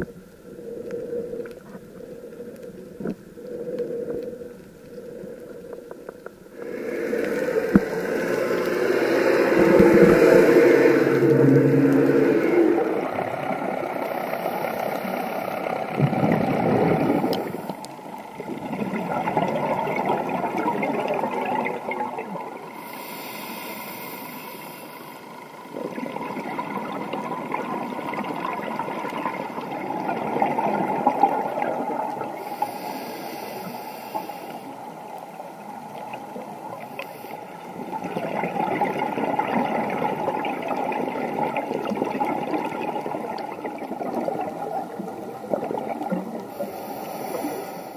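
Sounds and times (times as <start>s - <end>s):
muffled underwater rushing water: 0.0s - 47.9s
scuba regulator breath hiss: 6.5s - 13.0s, 14.0s - 15.9s, 22.7s - 25.6s, 32.3s - 35.1s, 36.9s - 37.7s, 46.5s - 47.9s.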